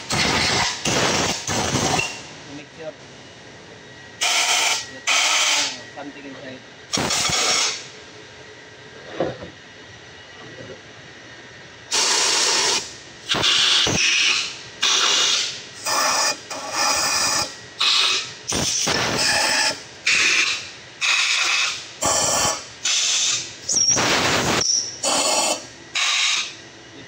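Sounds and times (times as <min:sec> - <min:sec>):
air blow gun blasts: 0:00.0 - 0:02.2, 0:06.9 - 0:07.9, 0:11.9 - 0:26.5.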